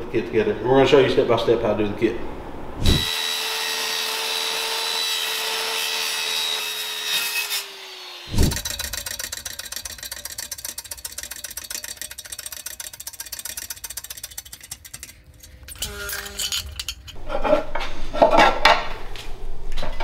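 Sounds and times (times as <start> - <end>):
steady rasping noise: 8.3 - 17.2
metallic ringing: 8.4 - 17.2.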